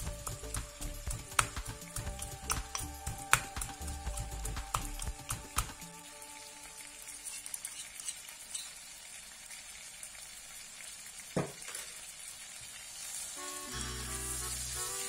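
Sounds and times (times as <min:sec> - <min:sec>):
background music: 0:00.0 - 0:07.3, 0:13.4 - 0:15.0
food sizzling in oil: 0:00.0 - 0:15.0.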